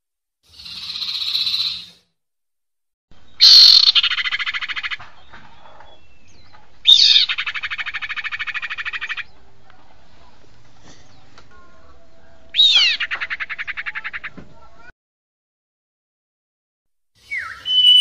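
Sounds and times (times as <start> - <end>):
bird calls with buzzy rattle: 0.5 - 2.0.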